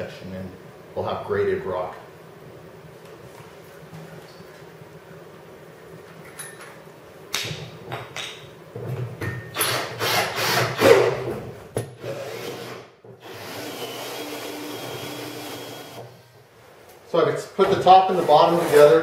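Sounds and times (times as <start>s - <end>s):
drill hole saw cutting plastic: 9.6s - 11.2s, 12.0s - 16.2s.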